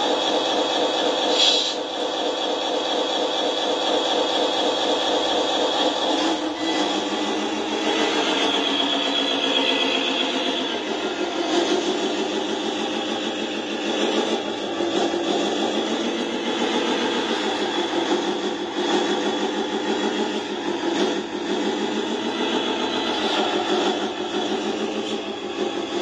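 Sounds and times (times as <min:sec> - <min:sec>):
diesel engine idling through speaker: 0:00.0 - 0:26.0.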